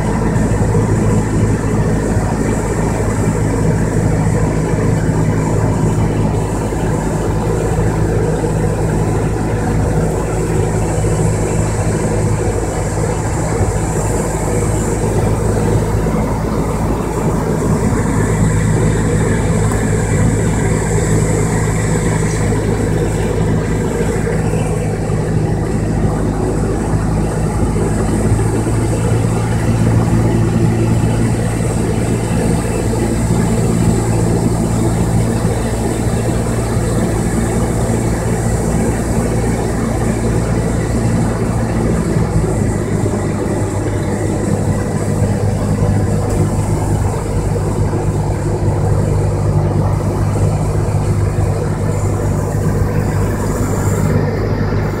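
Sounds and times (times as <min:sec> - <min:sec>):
light aircraft engine drone: 0:00.0 - 0:55.0
rushing air noise: 0:00.0 - 0:55.0.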